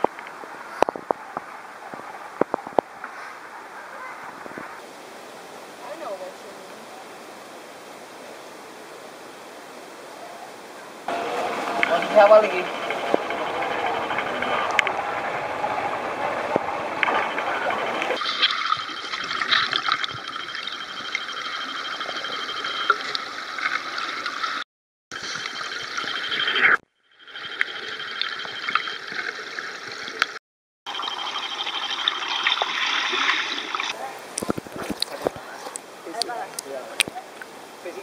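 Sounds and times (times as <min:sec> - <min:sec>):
water sloshing and splashing: 0:11.1 - 0:24.6, 0:27.6 - 0:35.9
small underwater clicks: 0:33.8 - 0:37.5.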